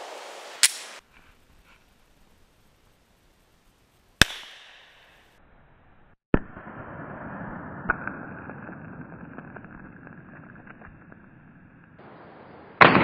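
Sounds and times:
pistol shot: 0:04.2 - 0:05.0, 0:12.8 - 0:13.0
steady noise: 0:06.5 - 0:12.8
target bursting with sharp crack: 0:12.0 - 0:13.0.

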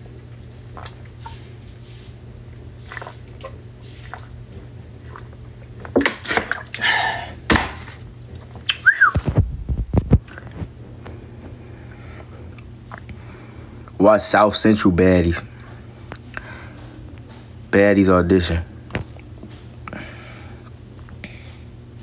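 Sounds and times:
person gulping water: 0:00.4 - 0:01.4, 0:02.8 - 0:04.4, 0:05.0 - 0:05.4, 0:12.5 - 0:13.2
person breathing: 0:06.8 - 0:07.4, 0:16.4 - 0:17.0, 0:19.9 - 0:21.6.

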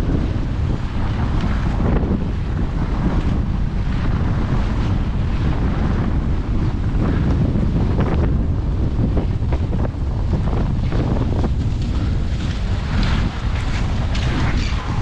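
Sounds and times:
wind buffeting microphone: 0:00.0 - 0:15.0
skis and poles scraping snow: 0:10.8 - 0:15.0.

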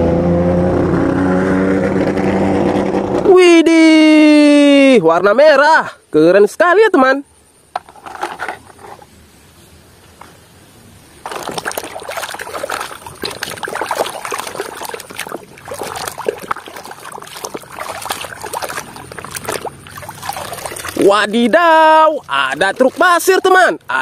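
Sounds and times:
water sloshing in plastic basin: 0:11.2 - 0:23.9.

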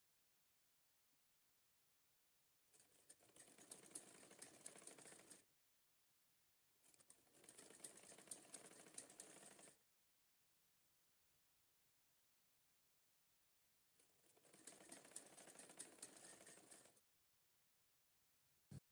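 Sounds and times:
sewing machine stitching: 0:02.7 - 0:05.5, 0:06.9 - 0:09.8, 0:14.0 - 0:17.1.

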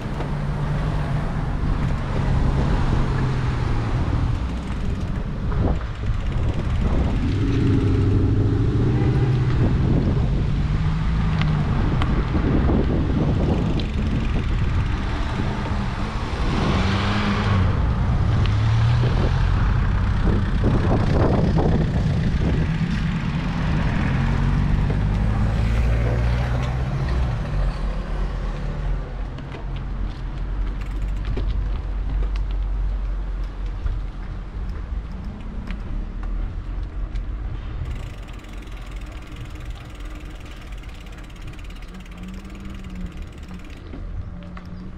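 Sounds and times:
passing car engines humming: 0:00.0 - 0:29.2.

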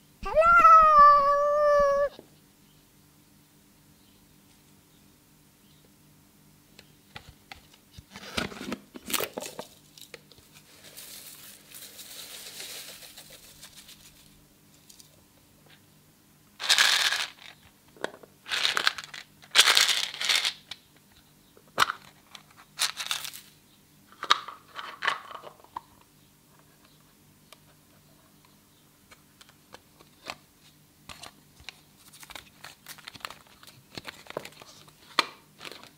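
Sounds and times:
foil confetti crinkling: 0:09.2 - 0:15.1.

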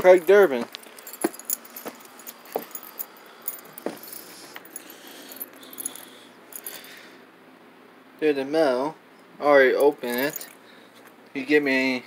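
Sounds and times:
metallic clicking and jingling: 0:00.0 - 0:07.0, 0:09.8 - 0:10.6
footsteps on brick steps: 0:00.5 - 0:02.8.

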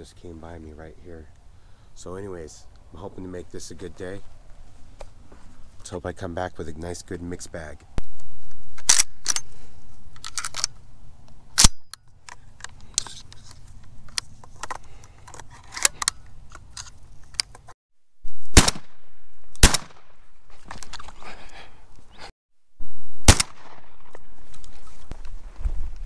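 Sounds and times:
shotgun shells loading clicks: 0:10.1 - 0:10.8, 0:11.6 - 0:17.6
shotgun shots: 0:18.5 - 0:20.2, 0:23.2 - 0:24.2.

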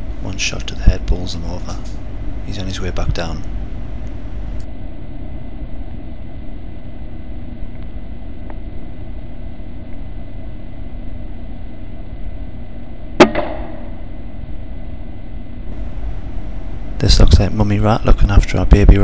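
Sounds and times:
low background hum: 0:00.0 - 0:19.0
air rifle shot: 0:13.2 - 0:14.0.

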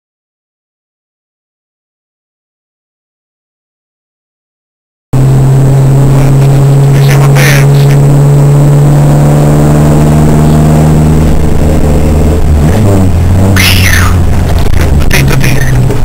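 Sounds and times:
off-road vehicle engine driving: 0:05.2 - 0:16.0.

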